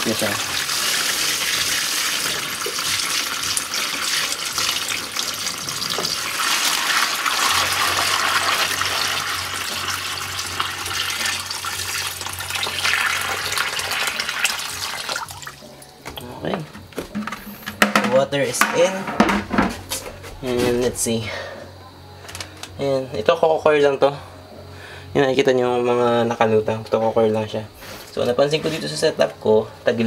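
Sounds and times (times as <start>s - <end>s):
water pouring and splashing: 0.0s - 15.8s.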